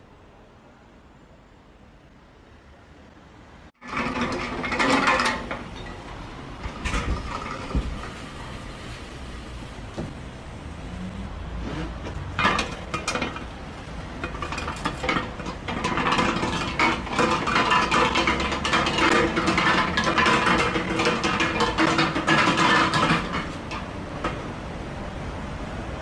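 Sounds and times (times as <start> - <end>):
metal keg rolling on cobblestones: 3.8 - 10.4, 11.9 - 24.6.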